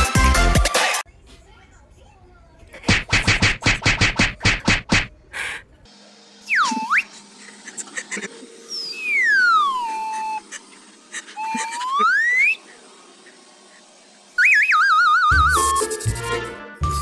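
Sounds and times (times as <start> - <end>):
slide whistle glides: 6.4 - 7.2, 8.7 - 10.5, 11.4 - 12.7, 14.4 - 16.4
loud warbling tone: 8.7 - 10.5, 11.4 - 12.6, 14.4 - 15.8.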